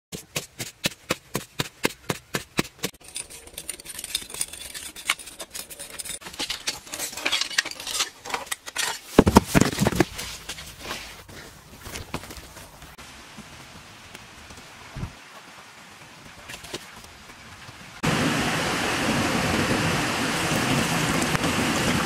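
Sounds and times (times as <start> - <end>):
digging strikes in dry soil: 0.1 - 3.2
scraping and rustling soil: 0.1 - 17.8
heavy thumps: 9.2 - 10.2.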